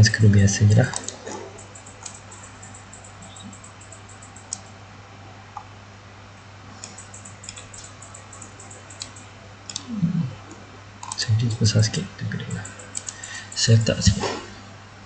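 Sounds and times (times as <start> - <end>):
low electrical hum: 0.0 - 15.0
mouse and keyboard clicks: 0.9 - 4.7, 6.8 - 9.9, 11.0 - 11.2, 12.5 - 14.2.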